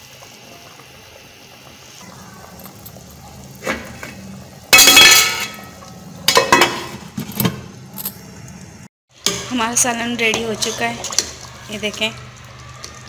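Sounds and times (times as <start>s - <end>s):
curry boiling in pot: 0.0s - 13.0s
pot lid clattering on metal pot: 4.7s - 7.7s.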